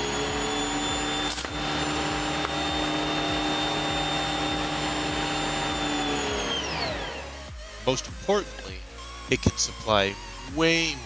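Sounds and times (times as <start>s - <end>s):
compressor high whine: 0.0s - 7.8s.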